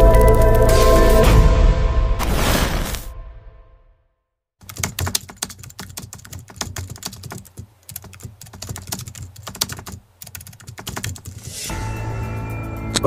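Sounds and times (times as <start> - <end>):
keyboard typing clicks: 4.6 - 11.3.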